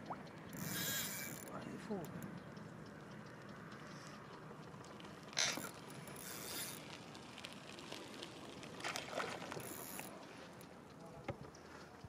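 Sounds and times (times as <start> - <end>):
fishing reel mechanical noise: 0.4 - 4.1, 5.2 - 7.0, 9.6 - 11.0.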